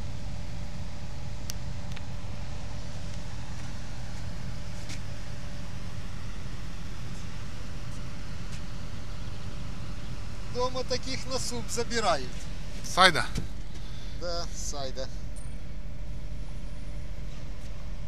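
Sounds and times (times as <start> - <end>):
constant hum: 0.0 - 18.0
diesel engine drone: 0.0 - 18.0.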